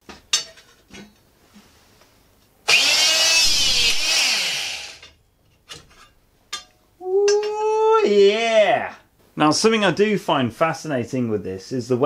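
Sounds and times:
electric hydraulic punch running: 2.7s - 5.0s.

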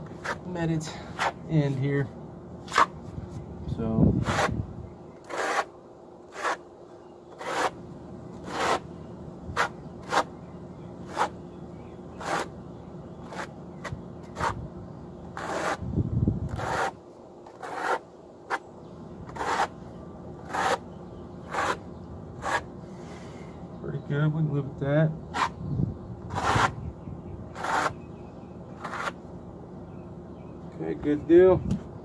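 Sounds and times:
trowel scraping mortar on wall: 4.2s - 4.5s, 5.2s - 5.7s, 6.3s - 6.6s, 7.3s - 7.8s, 8.4s - 8.9s, 9.6s - 10.3s, 11.0s - 11.4s, 12.2s - 12.6s, 13.2s - 13.6s, 15.4s - 15.8s, 16.5s - 18.6s, 19.3s - 19.8s, 20.4s - 21.8s, 22.4s - 22.7s, 26.3s - 26.8s, 27.6s - 28.0s, 28.8s - 29.2s.

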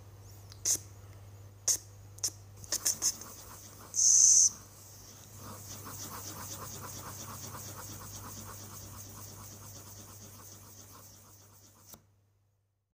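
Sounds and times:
low steady hum: 0.0s - 12.7s
rhythmic scratching: 2.7s - 4.1s, 5.3s - 11.9s.

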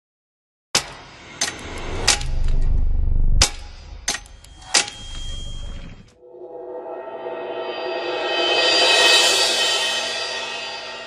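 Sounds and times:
low rumble: 1.6s - 9.3s
sustained musical chord: 6.2s - 11.0s.

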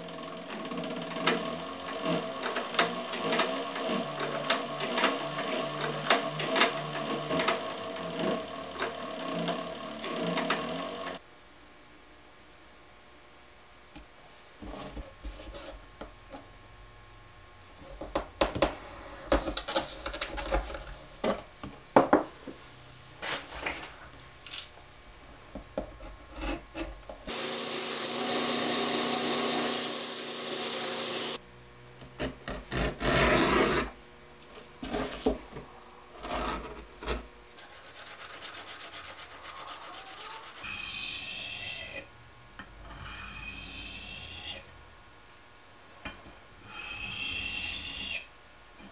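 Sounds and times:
belt grinder running: 0.0s - 11.2s, 27.3s - 31.4s
blade stroked on sharpening stone: 42.9s - 44.6s.

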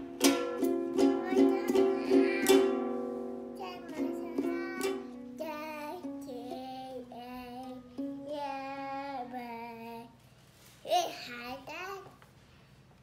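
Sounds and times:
toy ukulele strumming: 0.0s - 6.6s, 7.7s - 8.4s
child singing: 0.9s - 10.2s, 10.8s - 12.2s.

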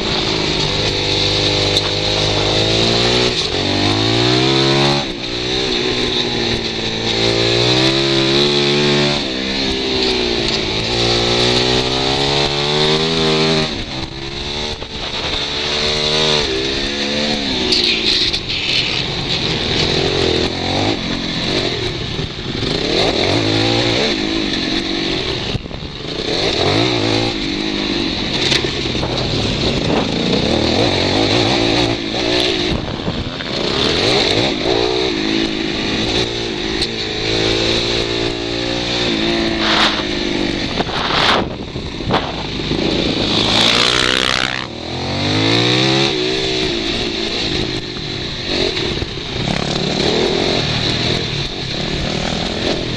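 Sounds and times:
motorcycle engine revving: 0.0s - 52.9s
wind rushing on microphone: 28.7s - 34.8s, 39.0s - 44.8s.

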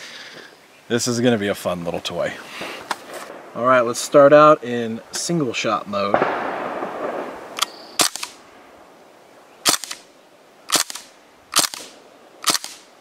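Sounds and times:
bb rifle shots popping: 6.1s - 8.4s, 9.6s - 10.1s, 10.7s - 12.9s.

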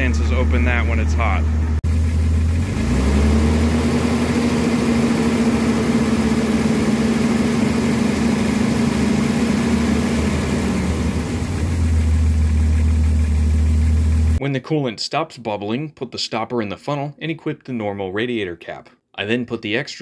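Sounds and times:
car engine revving then idling: 0.0s - 14.4s.

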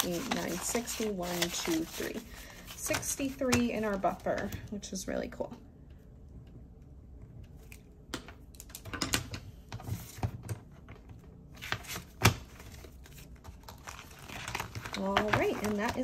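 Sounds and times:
paper bills rustling: 0.0s - 3.0s.

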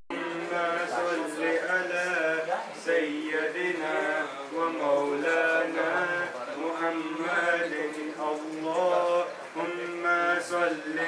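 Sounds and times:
men chanting devotional phrases: 0.1s - 11.0s.

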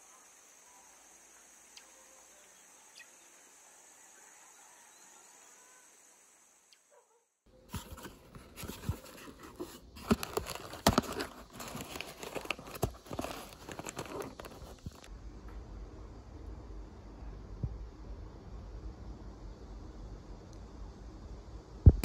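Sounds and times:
faint high hiss: 0.0s - 7.0s
cardboard crackling and clicking: 7.7s - 15.1s.

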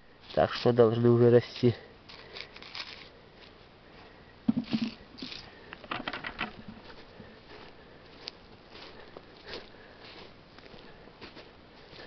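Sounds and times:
dry lichen and needles crackling: 0.2s - 4.1s, 6.8s - 12.0s.

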